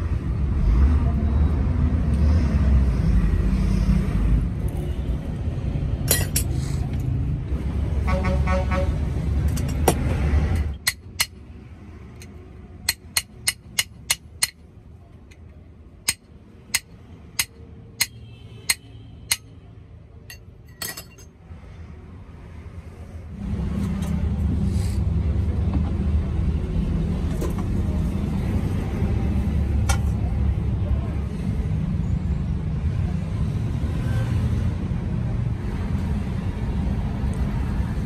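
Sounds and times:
metal tapping on bottle jack: 0:12.2 - 0:14.6, 0:15.3 - 0:19.5.

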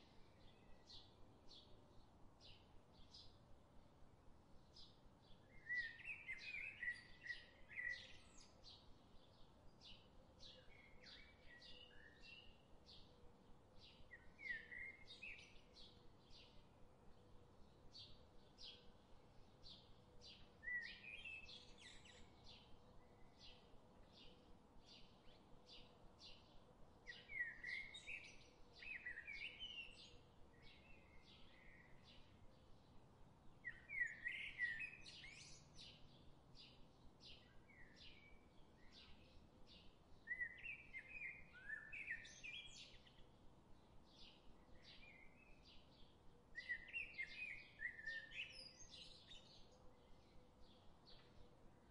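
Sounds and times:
bird warbling song: 0:27.1 - 0:32.3, 0:33.6 - 0:43.2, 0:44.2 - 0:51.4.

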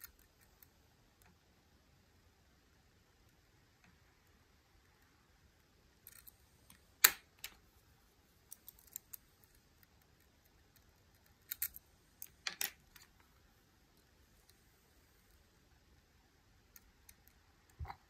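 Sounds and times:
lock-picking tools clicking: 0:06.1 - 0:07.6, 0:08.5 - 0:13.2.

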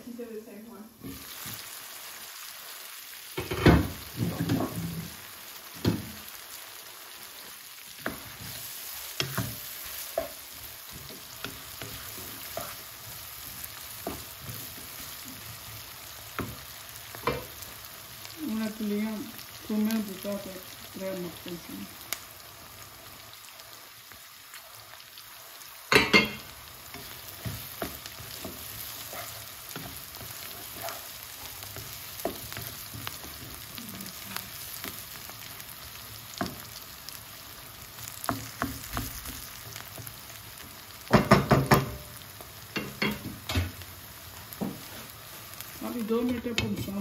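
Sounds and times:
vegetables sizzling in oil: 0:00.0 - 0:47.0
wooden spatula stirring: 0:07.4 - 0:18.0, 0:25.8 - 0:40.7, 0:44.4 - 0:47.0.

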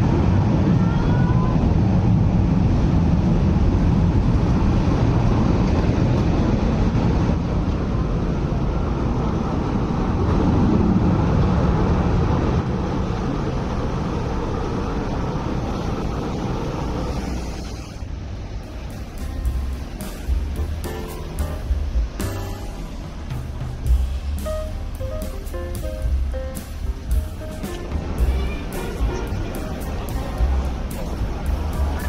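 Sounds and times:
tramcar rumbling on rails: 0:00.0 - 0:32.0.

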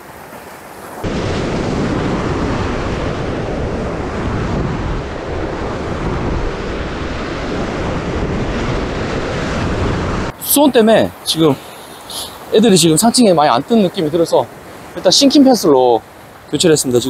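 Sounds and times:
surf breaking on rocks: 0:00.8 - 0:17.0
wind buffeting microphone: 0:01.0 - 0:10.4.

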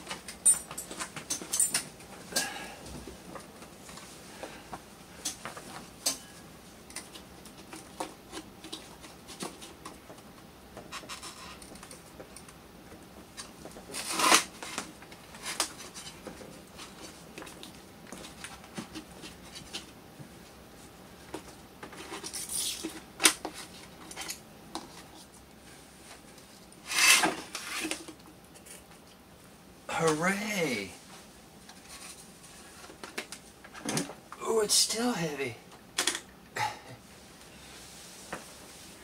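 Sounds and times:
loud scrape: 0:26.8 - 0:27.8.

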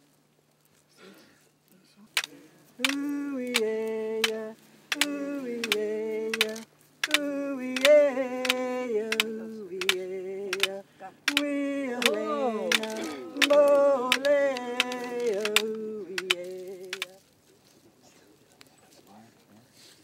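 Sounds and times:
person singing a chant: 0:02.8 - 0:17.2.

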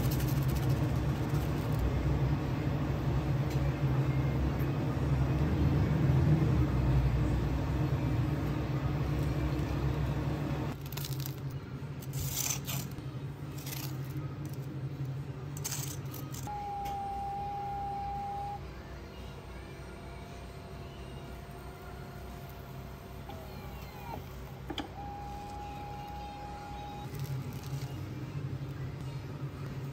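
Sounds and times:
low motor hum: 0:00.0 - 0:10.8.

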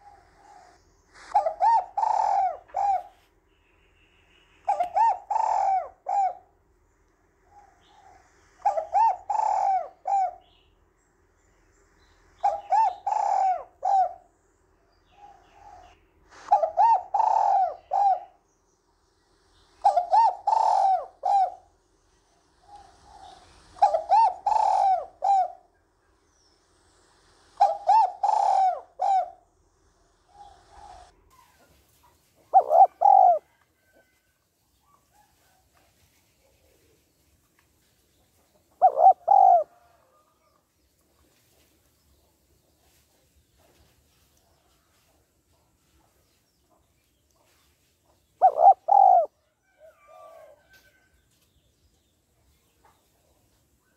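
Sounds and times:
dove cooing: 0:00.0 - 0:03.2, 0:04.6 - 0:06.6, 0:07.4 - 0:10.6, 0:12.4 - 0:14.3, 0:15.1 - 0:18.4, 0:19.8 - 0:21.8, 0:22.5 - 0:25.7, 0:27.6 - 0:29.5, 0:30.2 - 0:31.6, 0:32.4 - 0:34.1, 0:38.7 - 0:40.4, 0:48.4 - 0:51.0.

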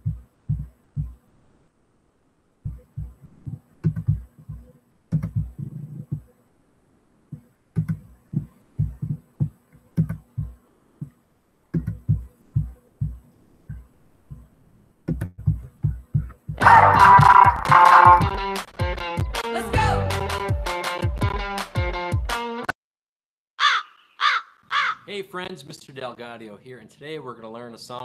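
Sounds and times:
soft low thumps on desk: 0:00.0 - 0:01.2, 0:02.6 - 0:06.3, 0:07.3 - 0:11.2, 0:11.8 - 0:14.5, 0:15.1 - 0:16.6.

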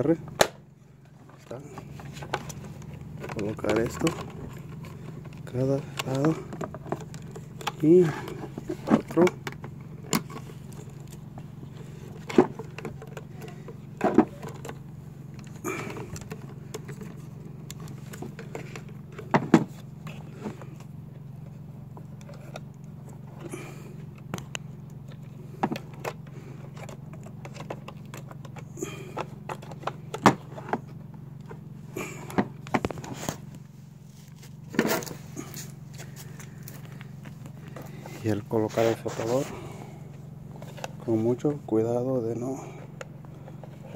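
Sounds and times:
steady low hum: 0:00.0 - 0:43.9
plastic parts clicking and knocking: 0:01.3 - 0:20.9, 0:24.1 - 0:31.6.

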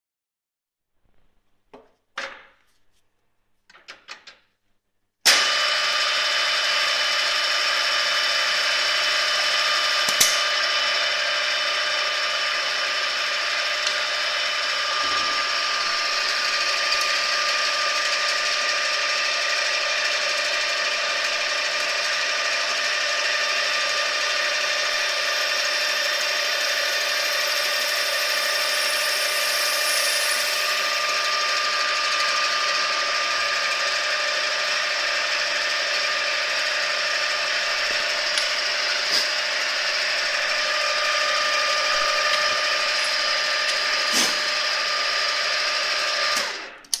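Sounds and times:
drilling machine whining: 0:05.3 - 0:47.0
sharp click: 0:10.1 - 0:10.5.

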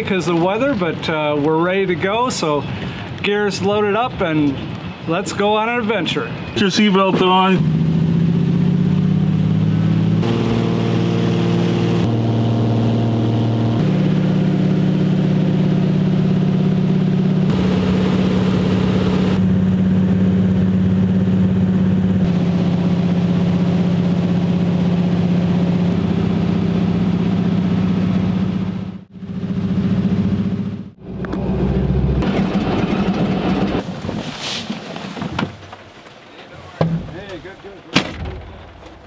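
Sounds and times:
floatplane engine droning: 0:07.6 - 0:34.0.

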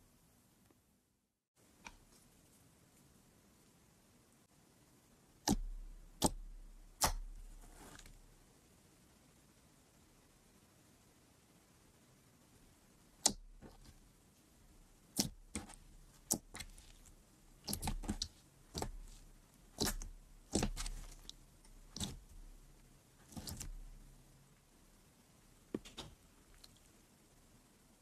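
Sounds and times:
slime popping and clicking: 0:19.8 - 0:21.4.

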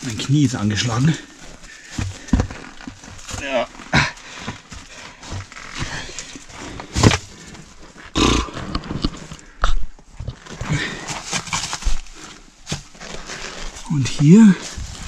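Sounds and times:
shoes scuffing on rubble: 0:00.3 - 0:08.2
person breathing hard: 0:03.9 - 0:07.7, 0:10.6 - 0:11.2.

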